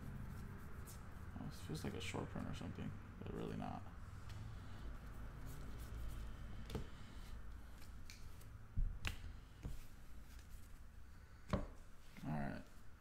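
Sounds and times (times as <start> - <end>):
cards flipped and snapped: 7.7 - 9.3.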